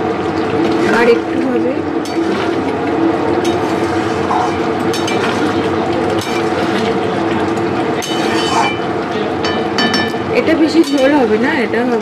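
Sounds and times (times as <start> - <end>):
steady hum: 0.0 - 12.0
metal ladle scraping a pan: 3.4 - 5.3, 8.0 - 8.9.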